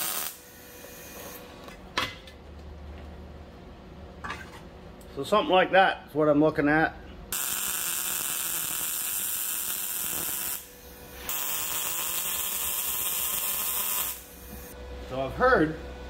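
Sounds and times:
welder arc hissing: 0.0s - 1.7s, 7.3s - 14.8s.

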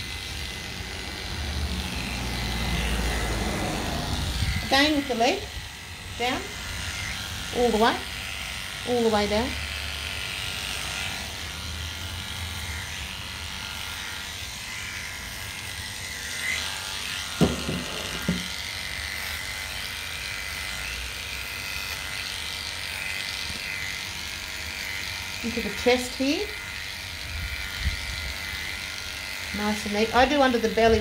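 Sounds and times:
electric clippers running: 0.0s - 31.0s
short knocks: 17.4s - 18.5s.

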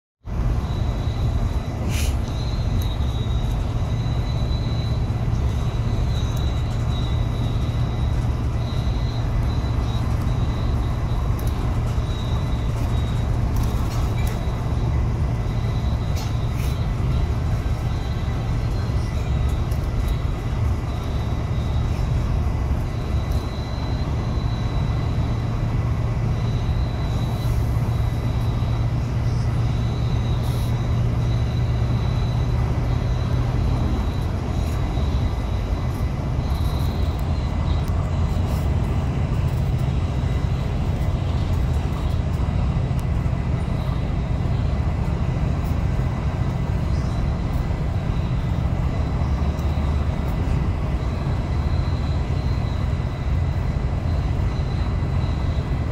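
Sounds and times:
road and engine rumble in a cabin: 0.2s - 55.9s.

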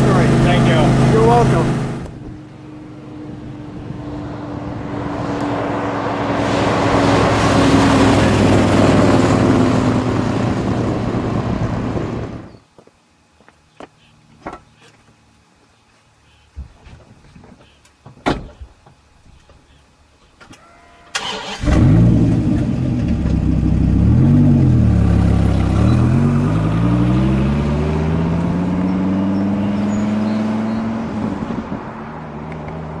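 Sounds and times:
vee eight engine starting and revving: 0.0s - 2.1s, 5.2s - 12.5s, 21.1s - 31.8s.

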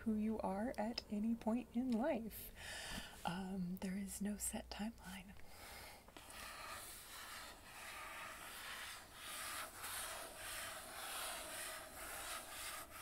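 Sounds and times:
book being rubbed: 6.2s - 13.0s.

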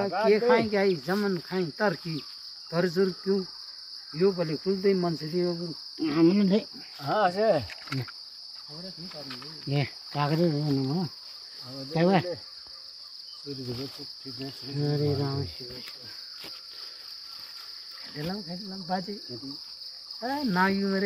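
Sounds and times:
people talking: 0.0s - 2.2s, 13.5s - 16.2s, 18.1s - 19.6s, 20.2s - 21.0s
high-pitched insect drone: 0.0s - 21.0s.

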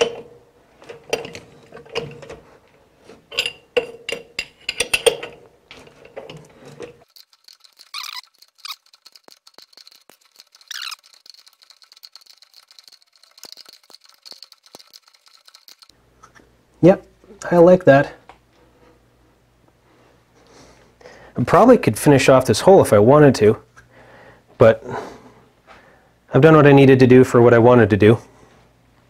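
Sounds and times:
wrench squeaking on chuck: 7.1s - 15.9s.

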